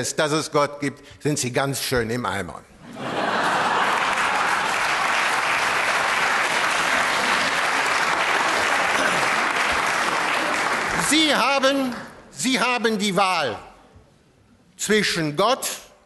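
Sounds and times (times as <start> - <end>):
audience applauding: 3.1 - 12.0.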